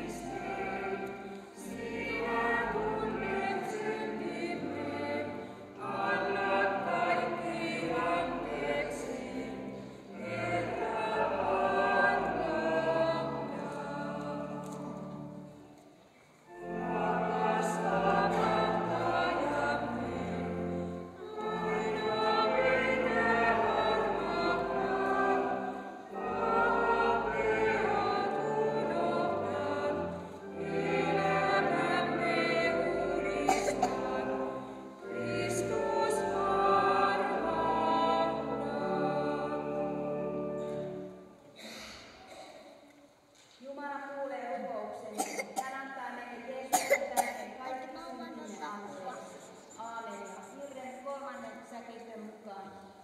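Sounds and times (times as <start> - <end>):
choir singing: 0.0 - 15.7, 16.4 - 42.9
held low accompanying notes: 0.0 - 15.8, 16.5 - 41.4.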